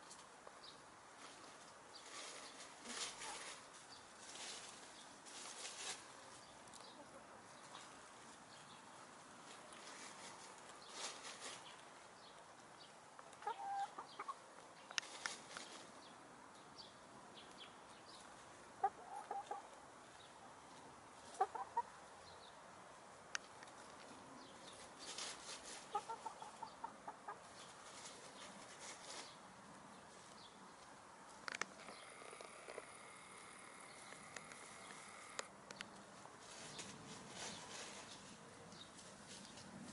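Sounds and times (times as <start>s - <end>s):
dry leaves rustling: 1.1s - 12.7s, 13.4s - 16.1s, 23.5s - 35.3s, 35.9s - 39.9s
hen clucking: 13.3s - 14.4s, 18.8s - 19.8s, 21.2s - 22.0s, 25.5s - 29.2s.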